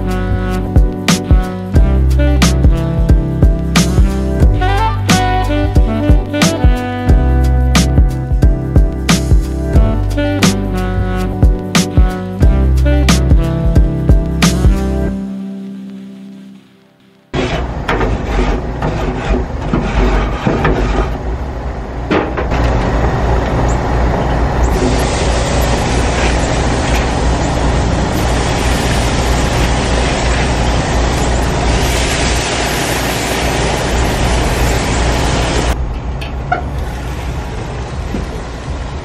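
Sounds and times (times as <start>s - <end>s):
wire brush scraping grill grates: 17.4s - 21.2s
steak sizzling: 28.1s - 35.7s.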